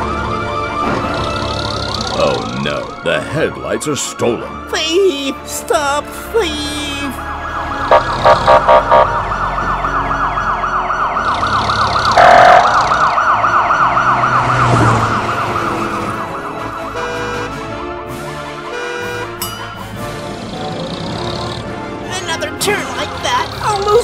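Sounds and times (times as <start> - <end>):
police siren yelping: 0.0 - 2.1, 6.7 - 17.7
loud horn blast: 7.9 - 9.2, 12.2 - 12.9, 16.3 - 19.4.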